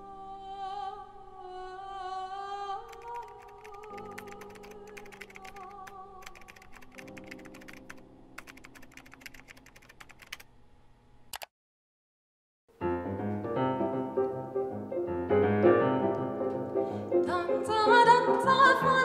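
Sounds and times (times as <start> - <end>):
soft music: 0.0 - 9.0, 12.7 - 19.0
fast keyboard typing: 2.9 - 10.5
single click: 11.3 - 11.5.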